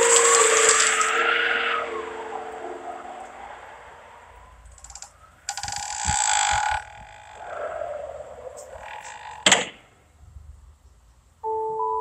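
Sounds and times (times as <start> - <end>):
wooden door creaking: 4.8 - 7.4, 8.6 - 9.8.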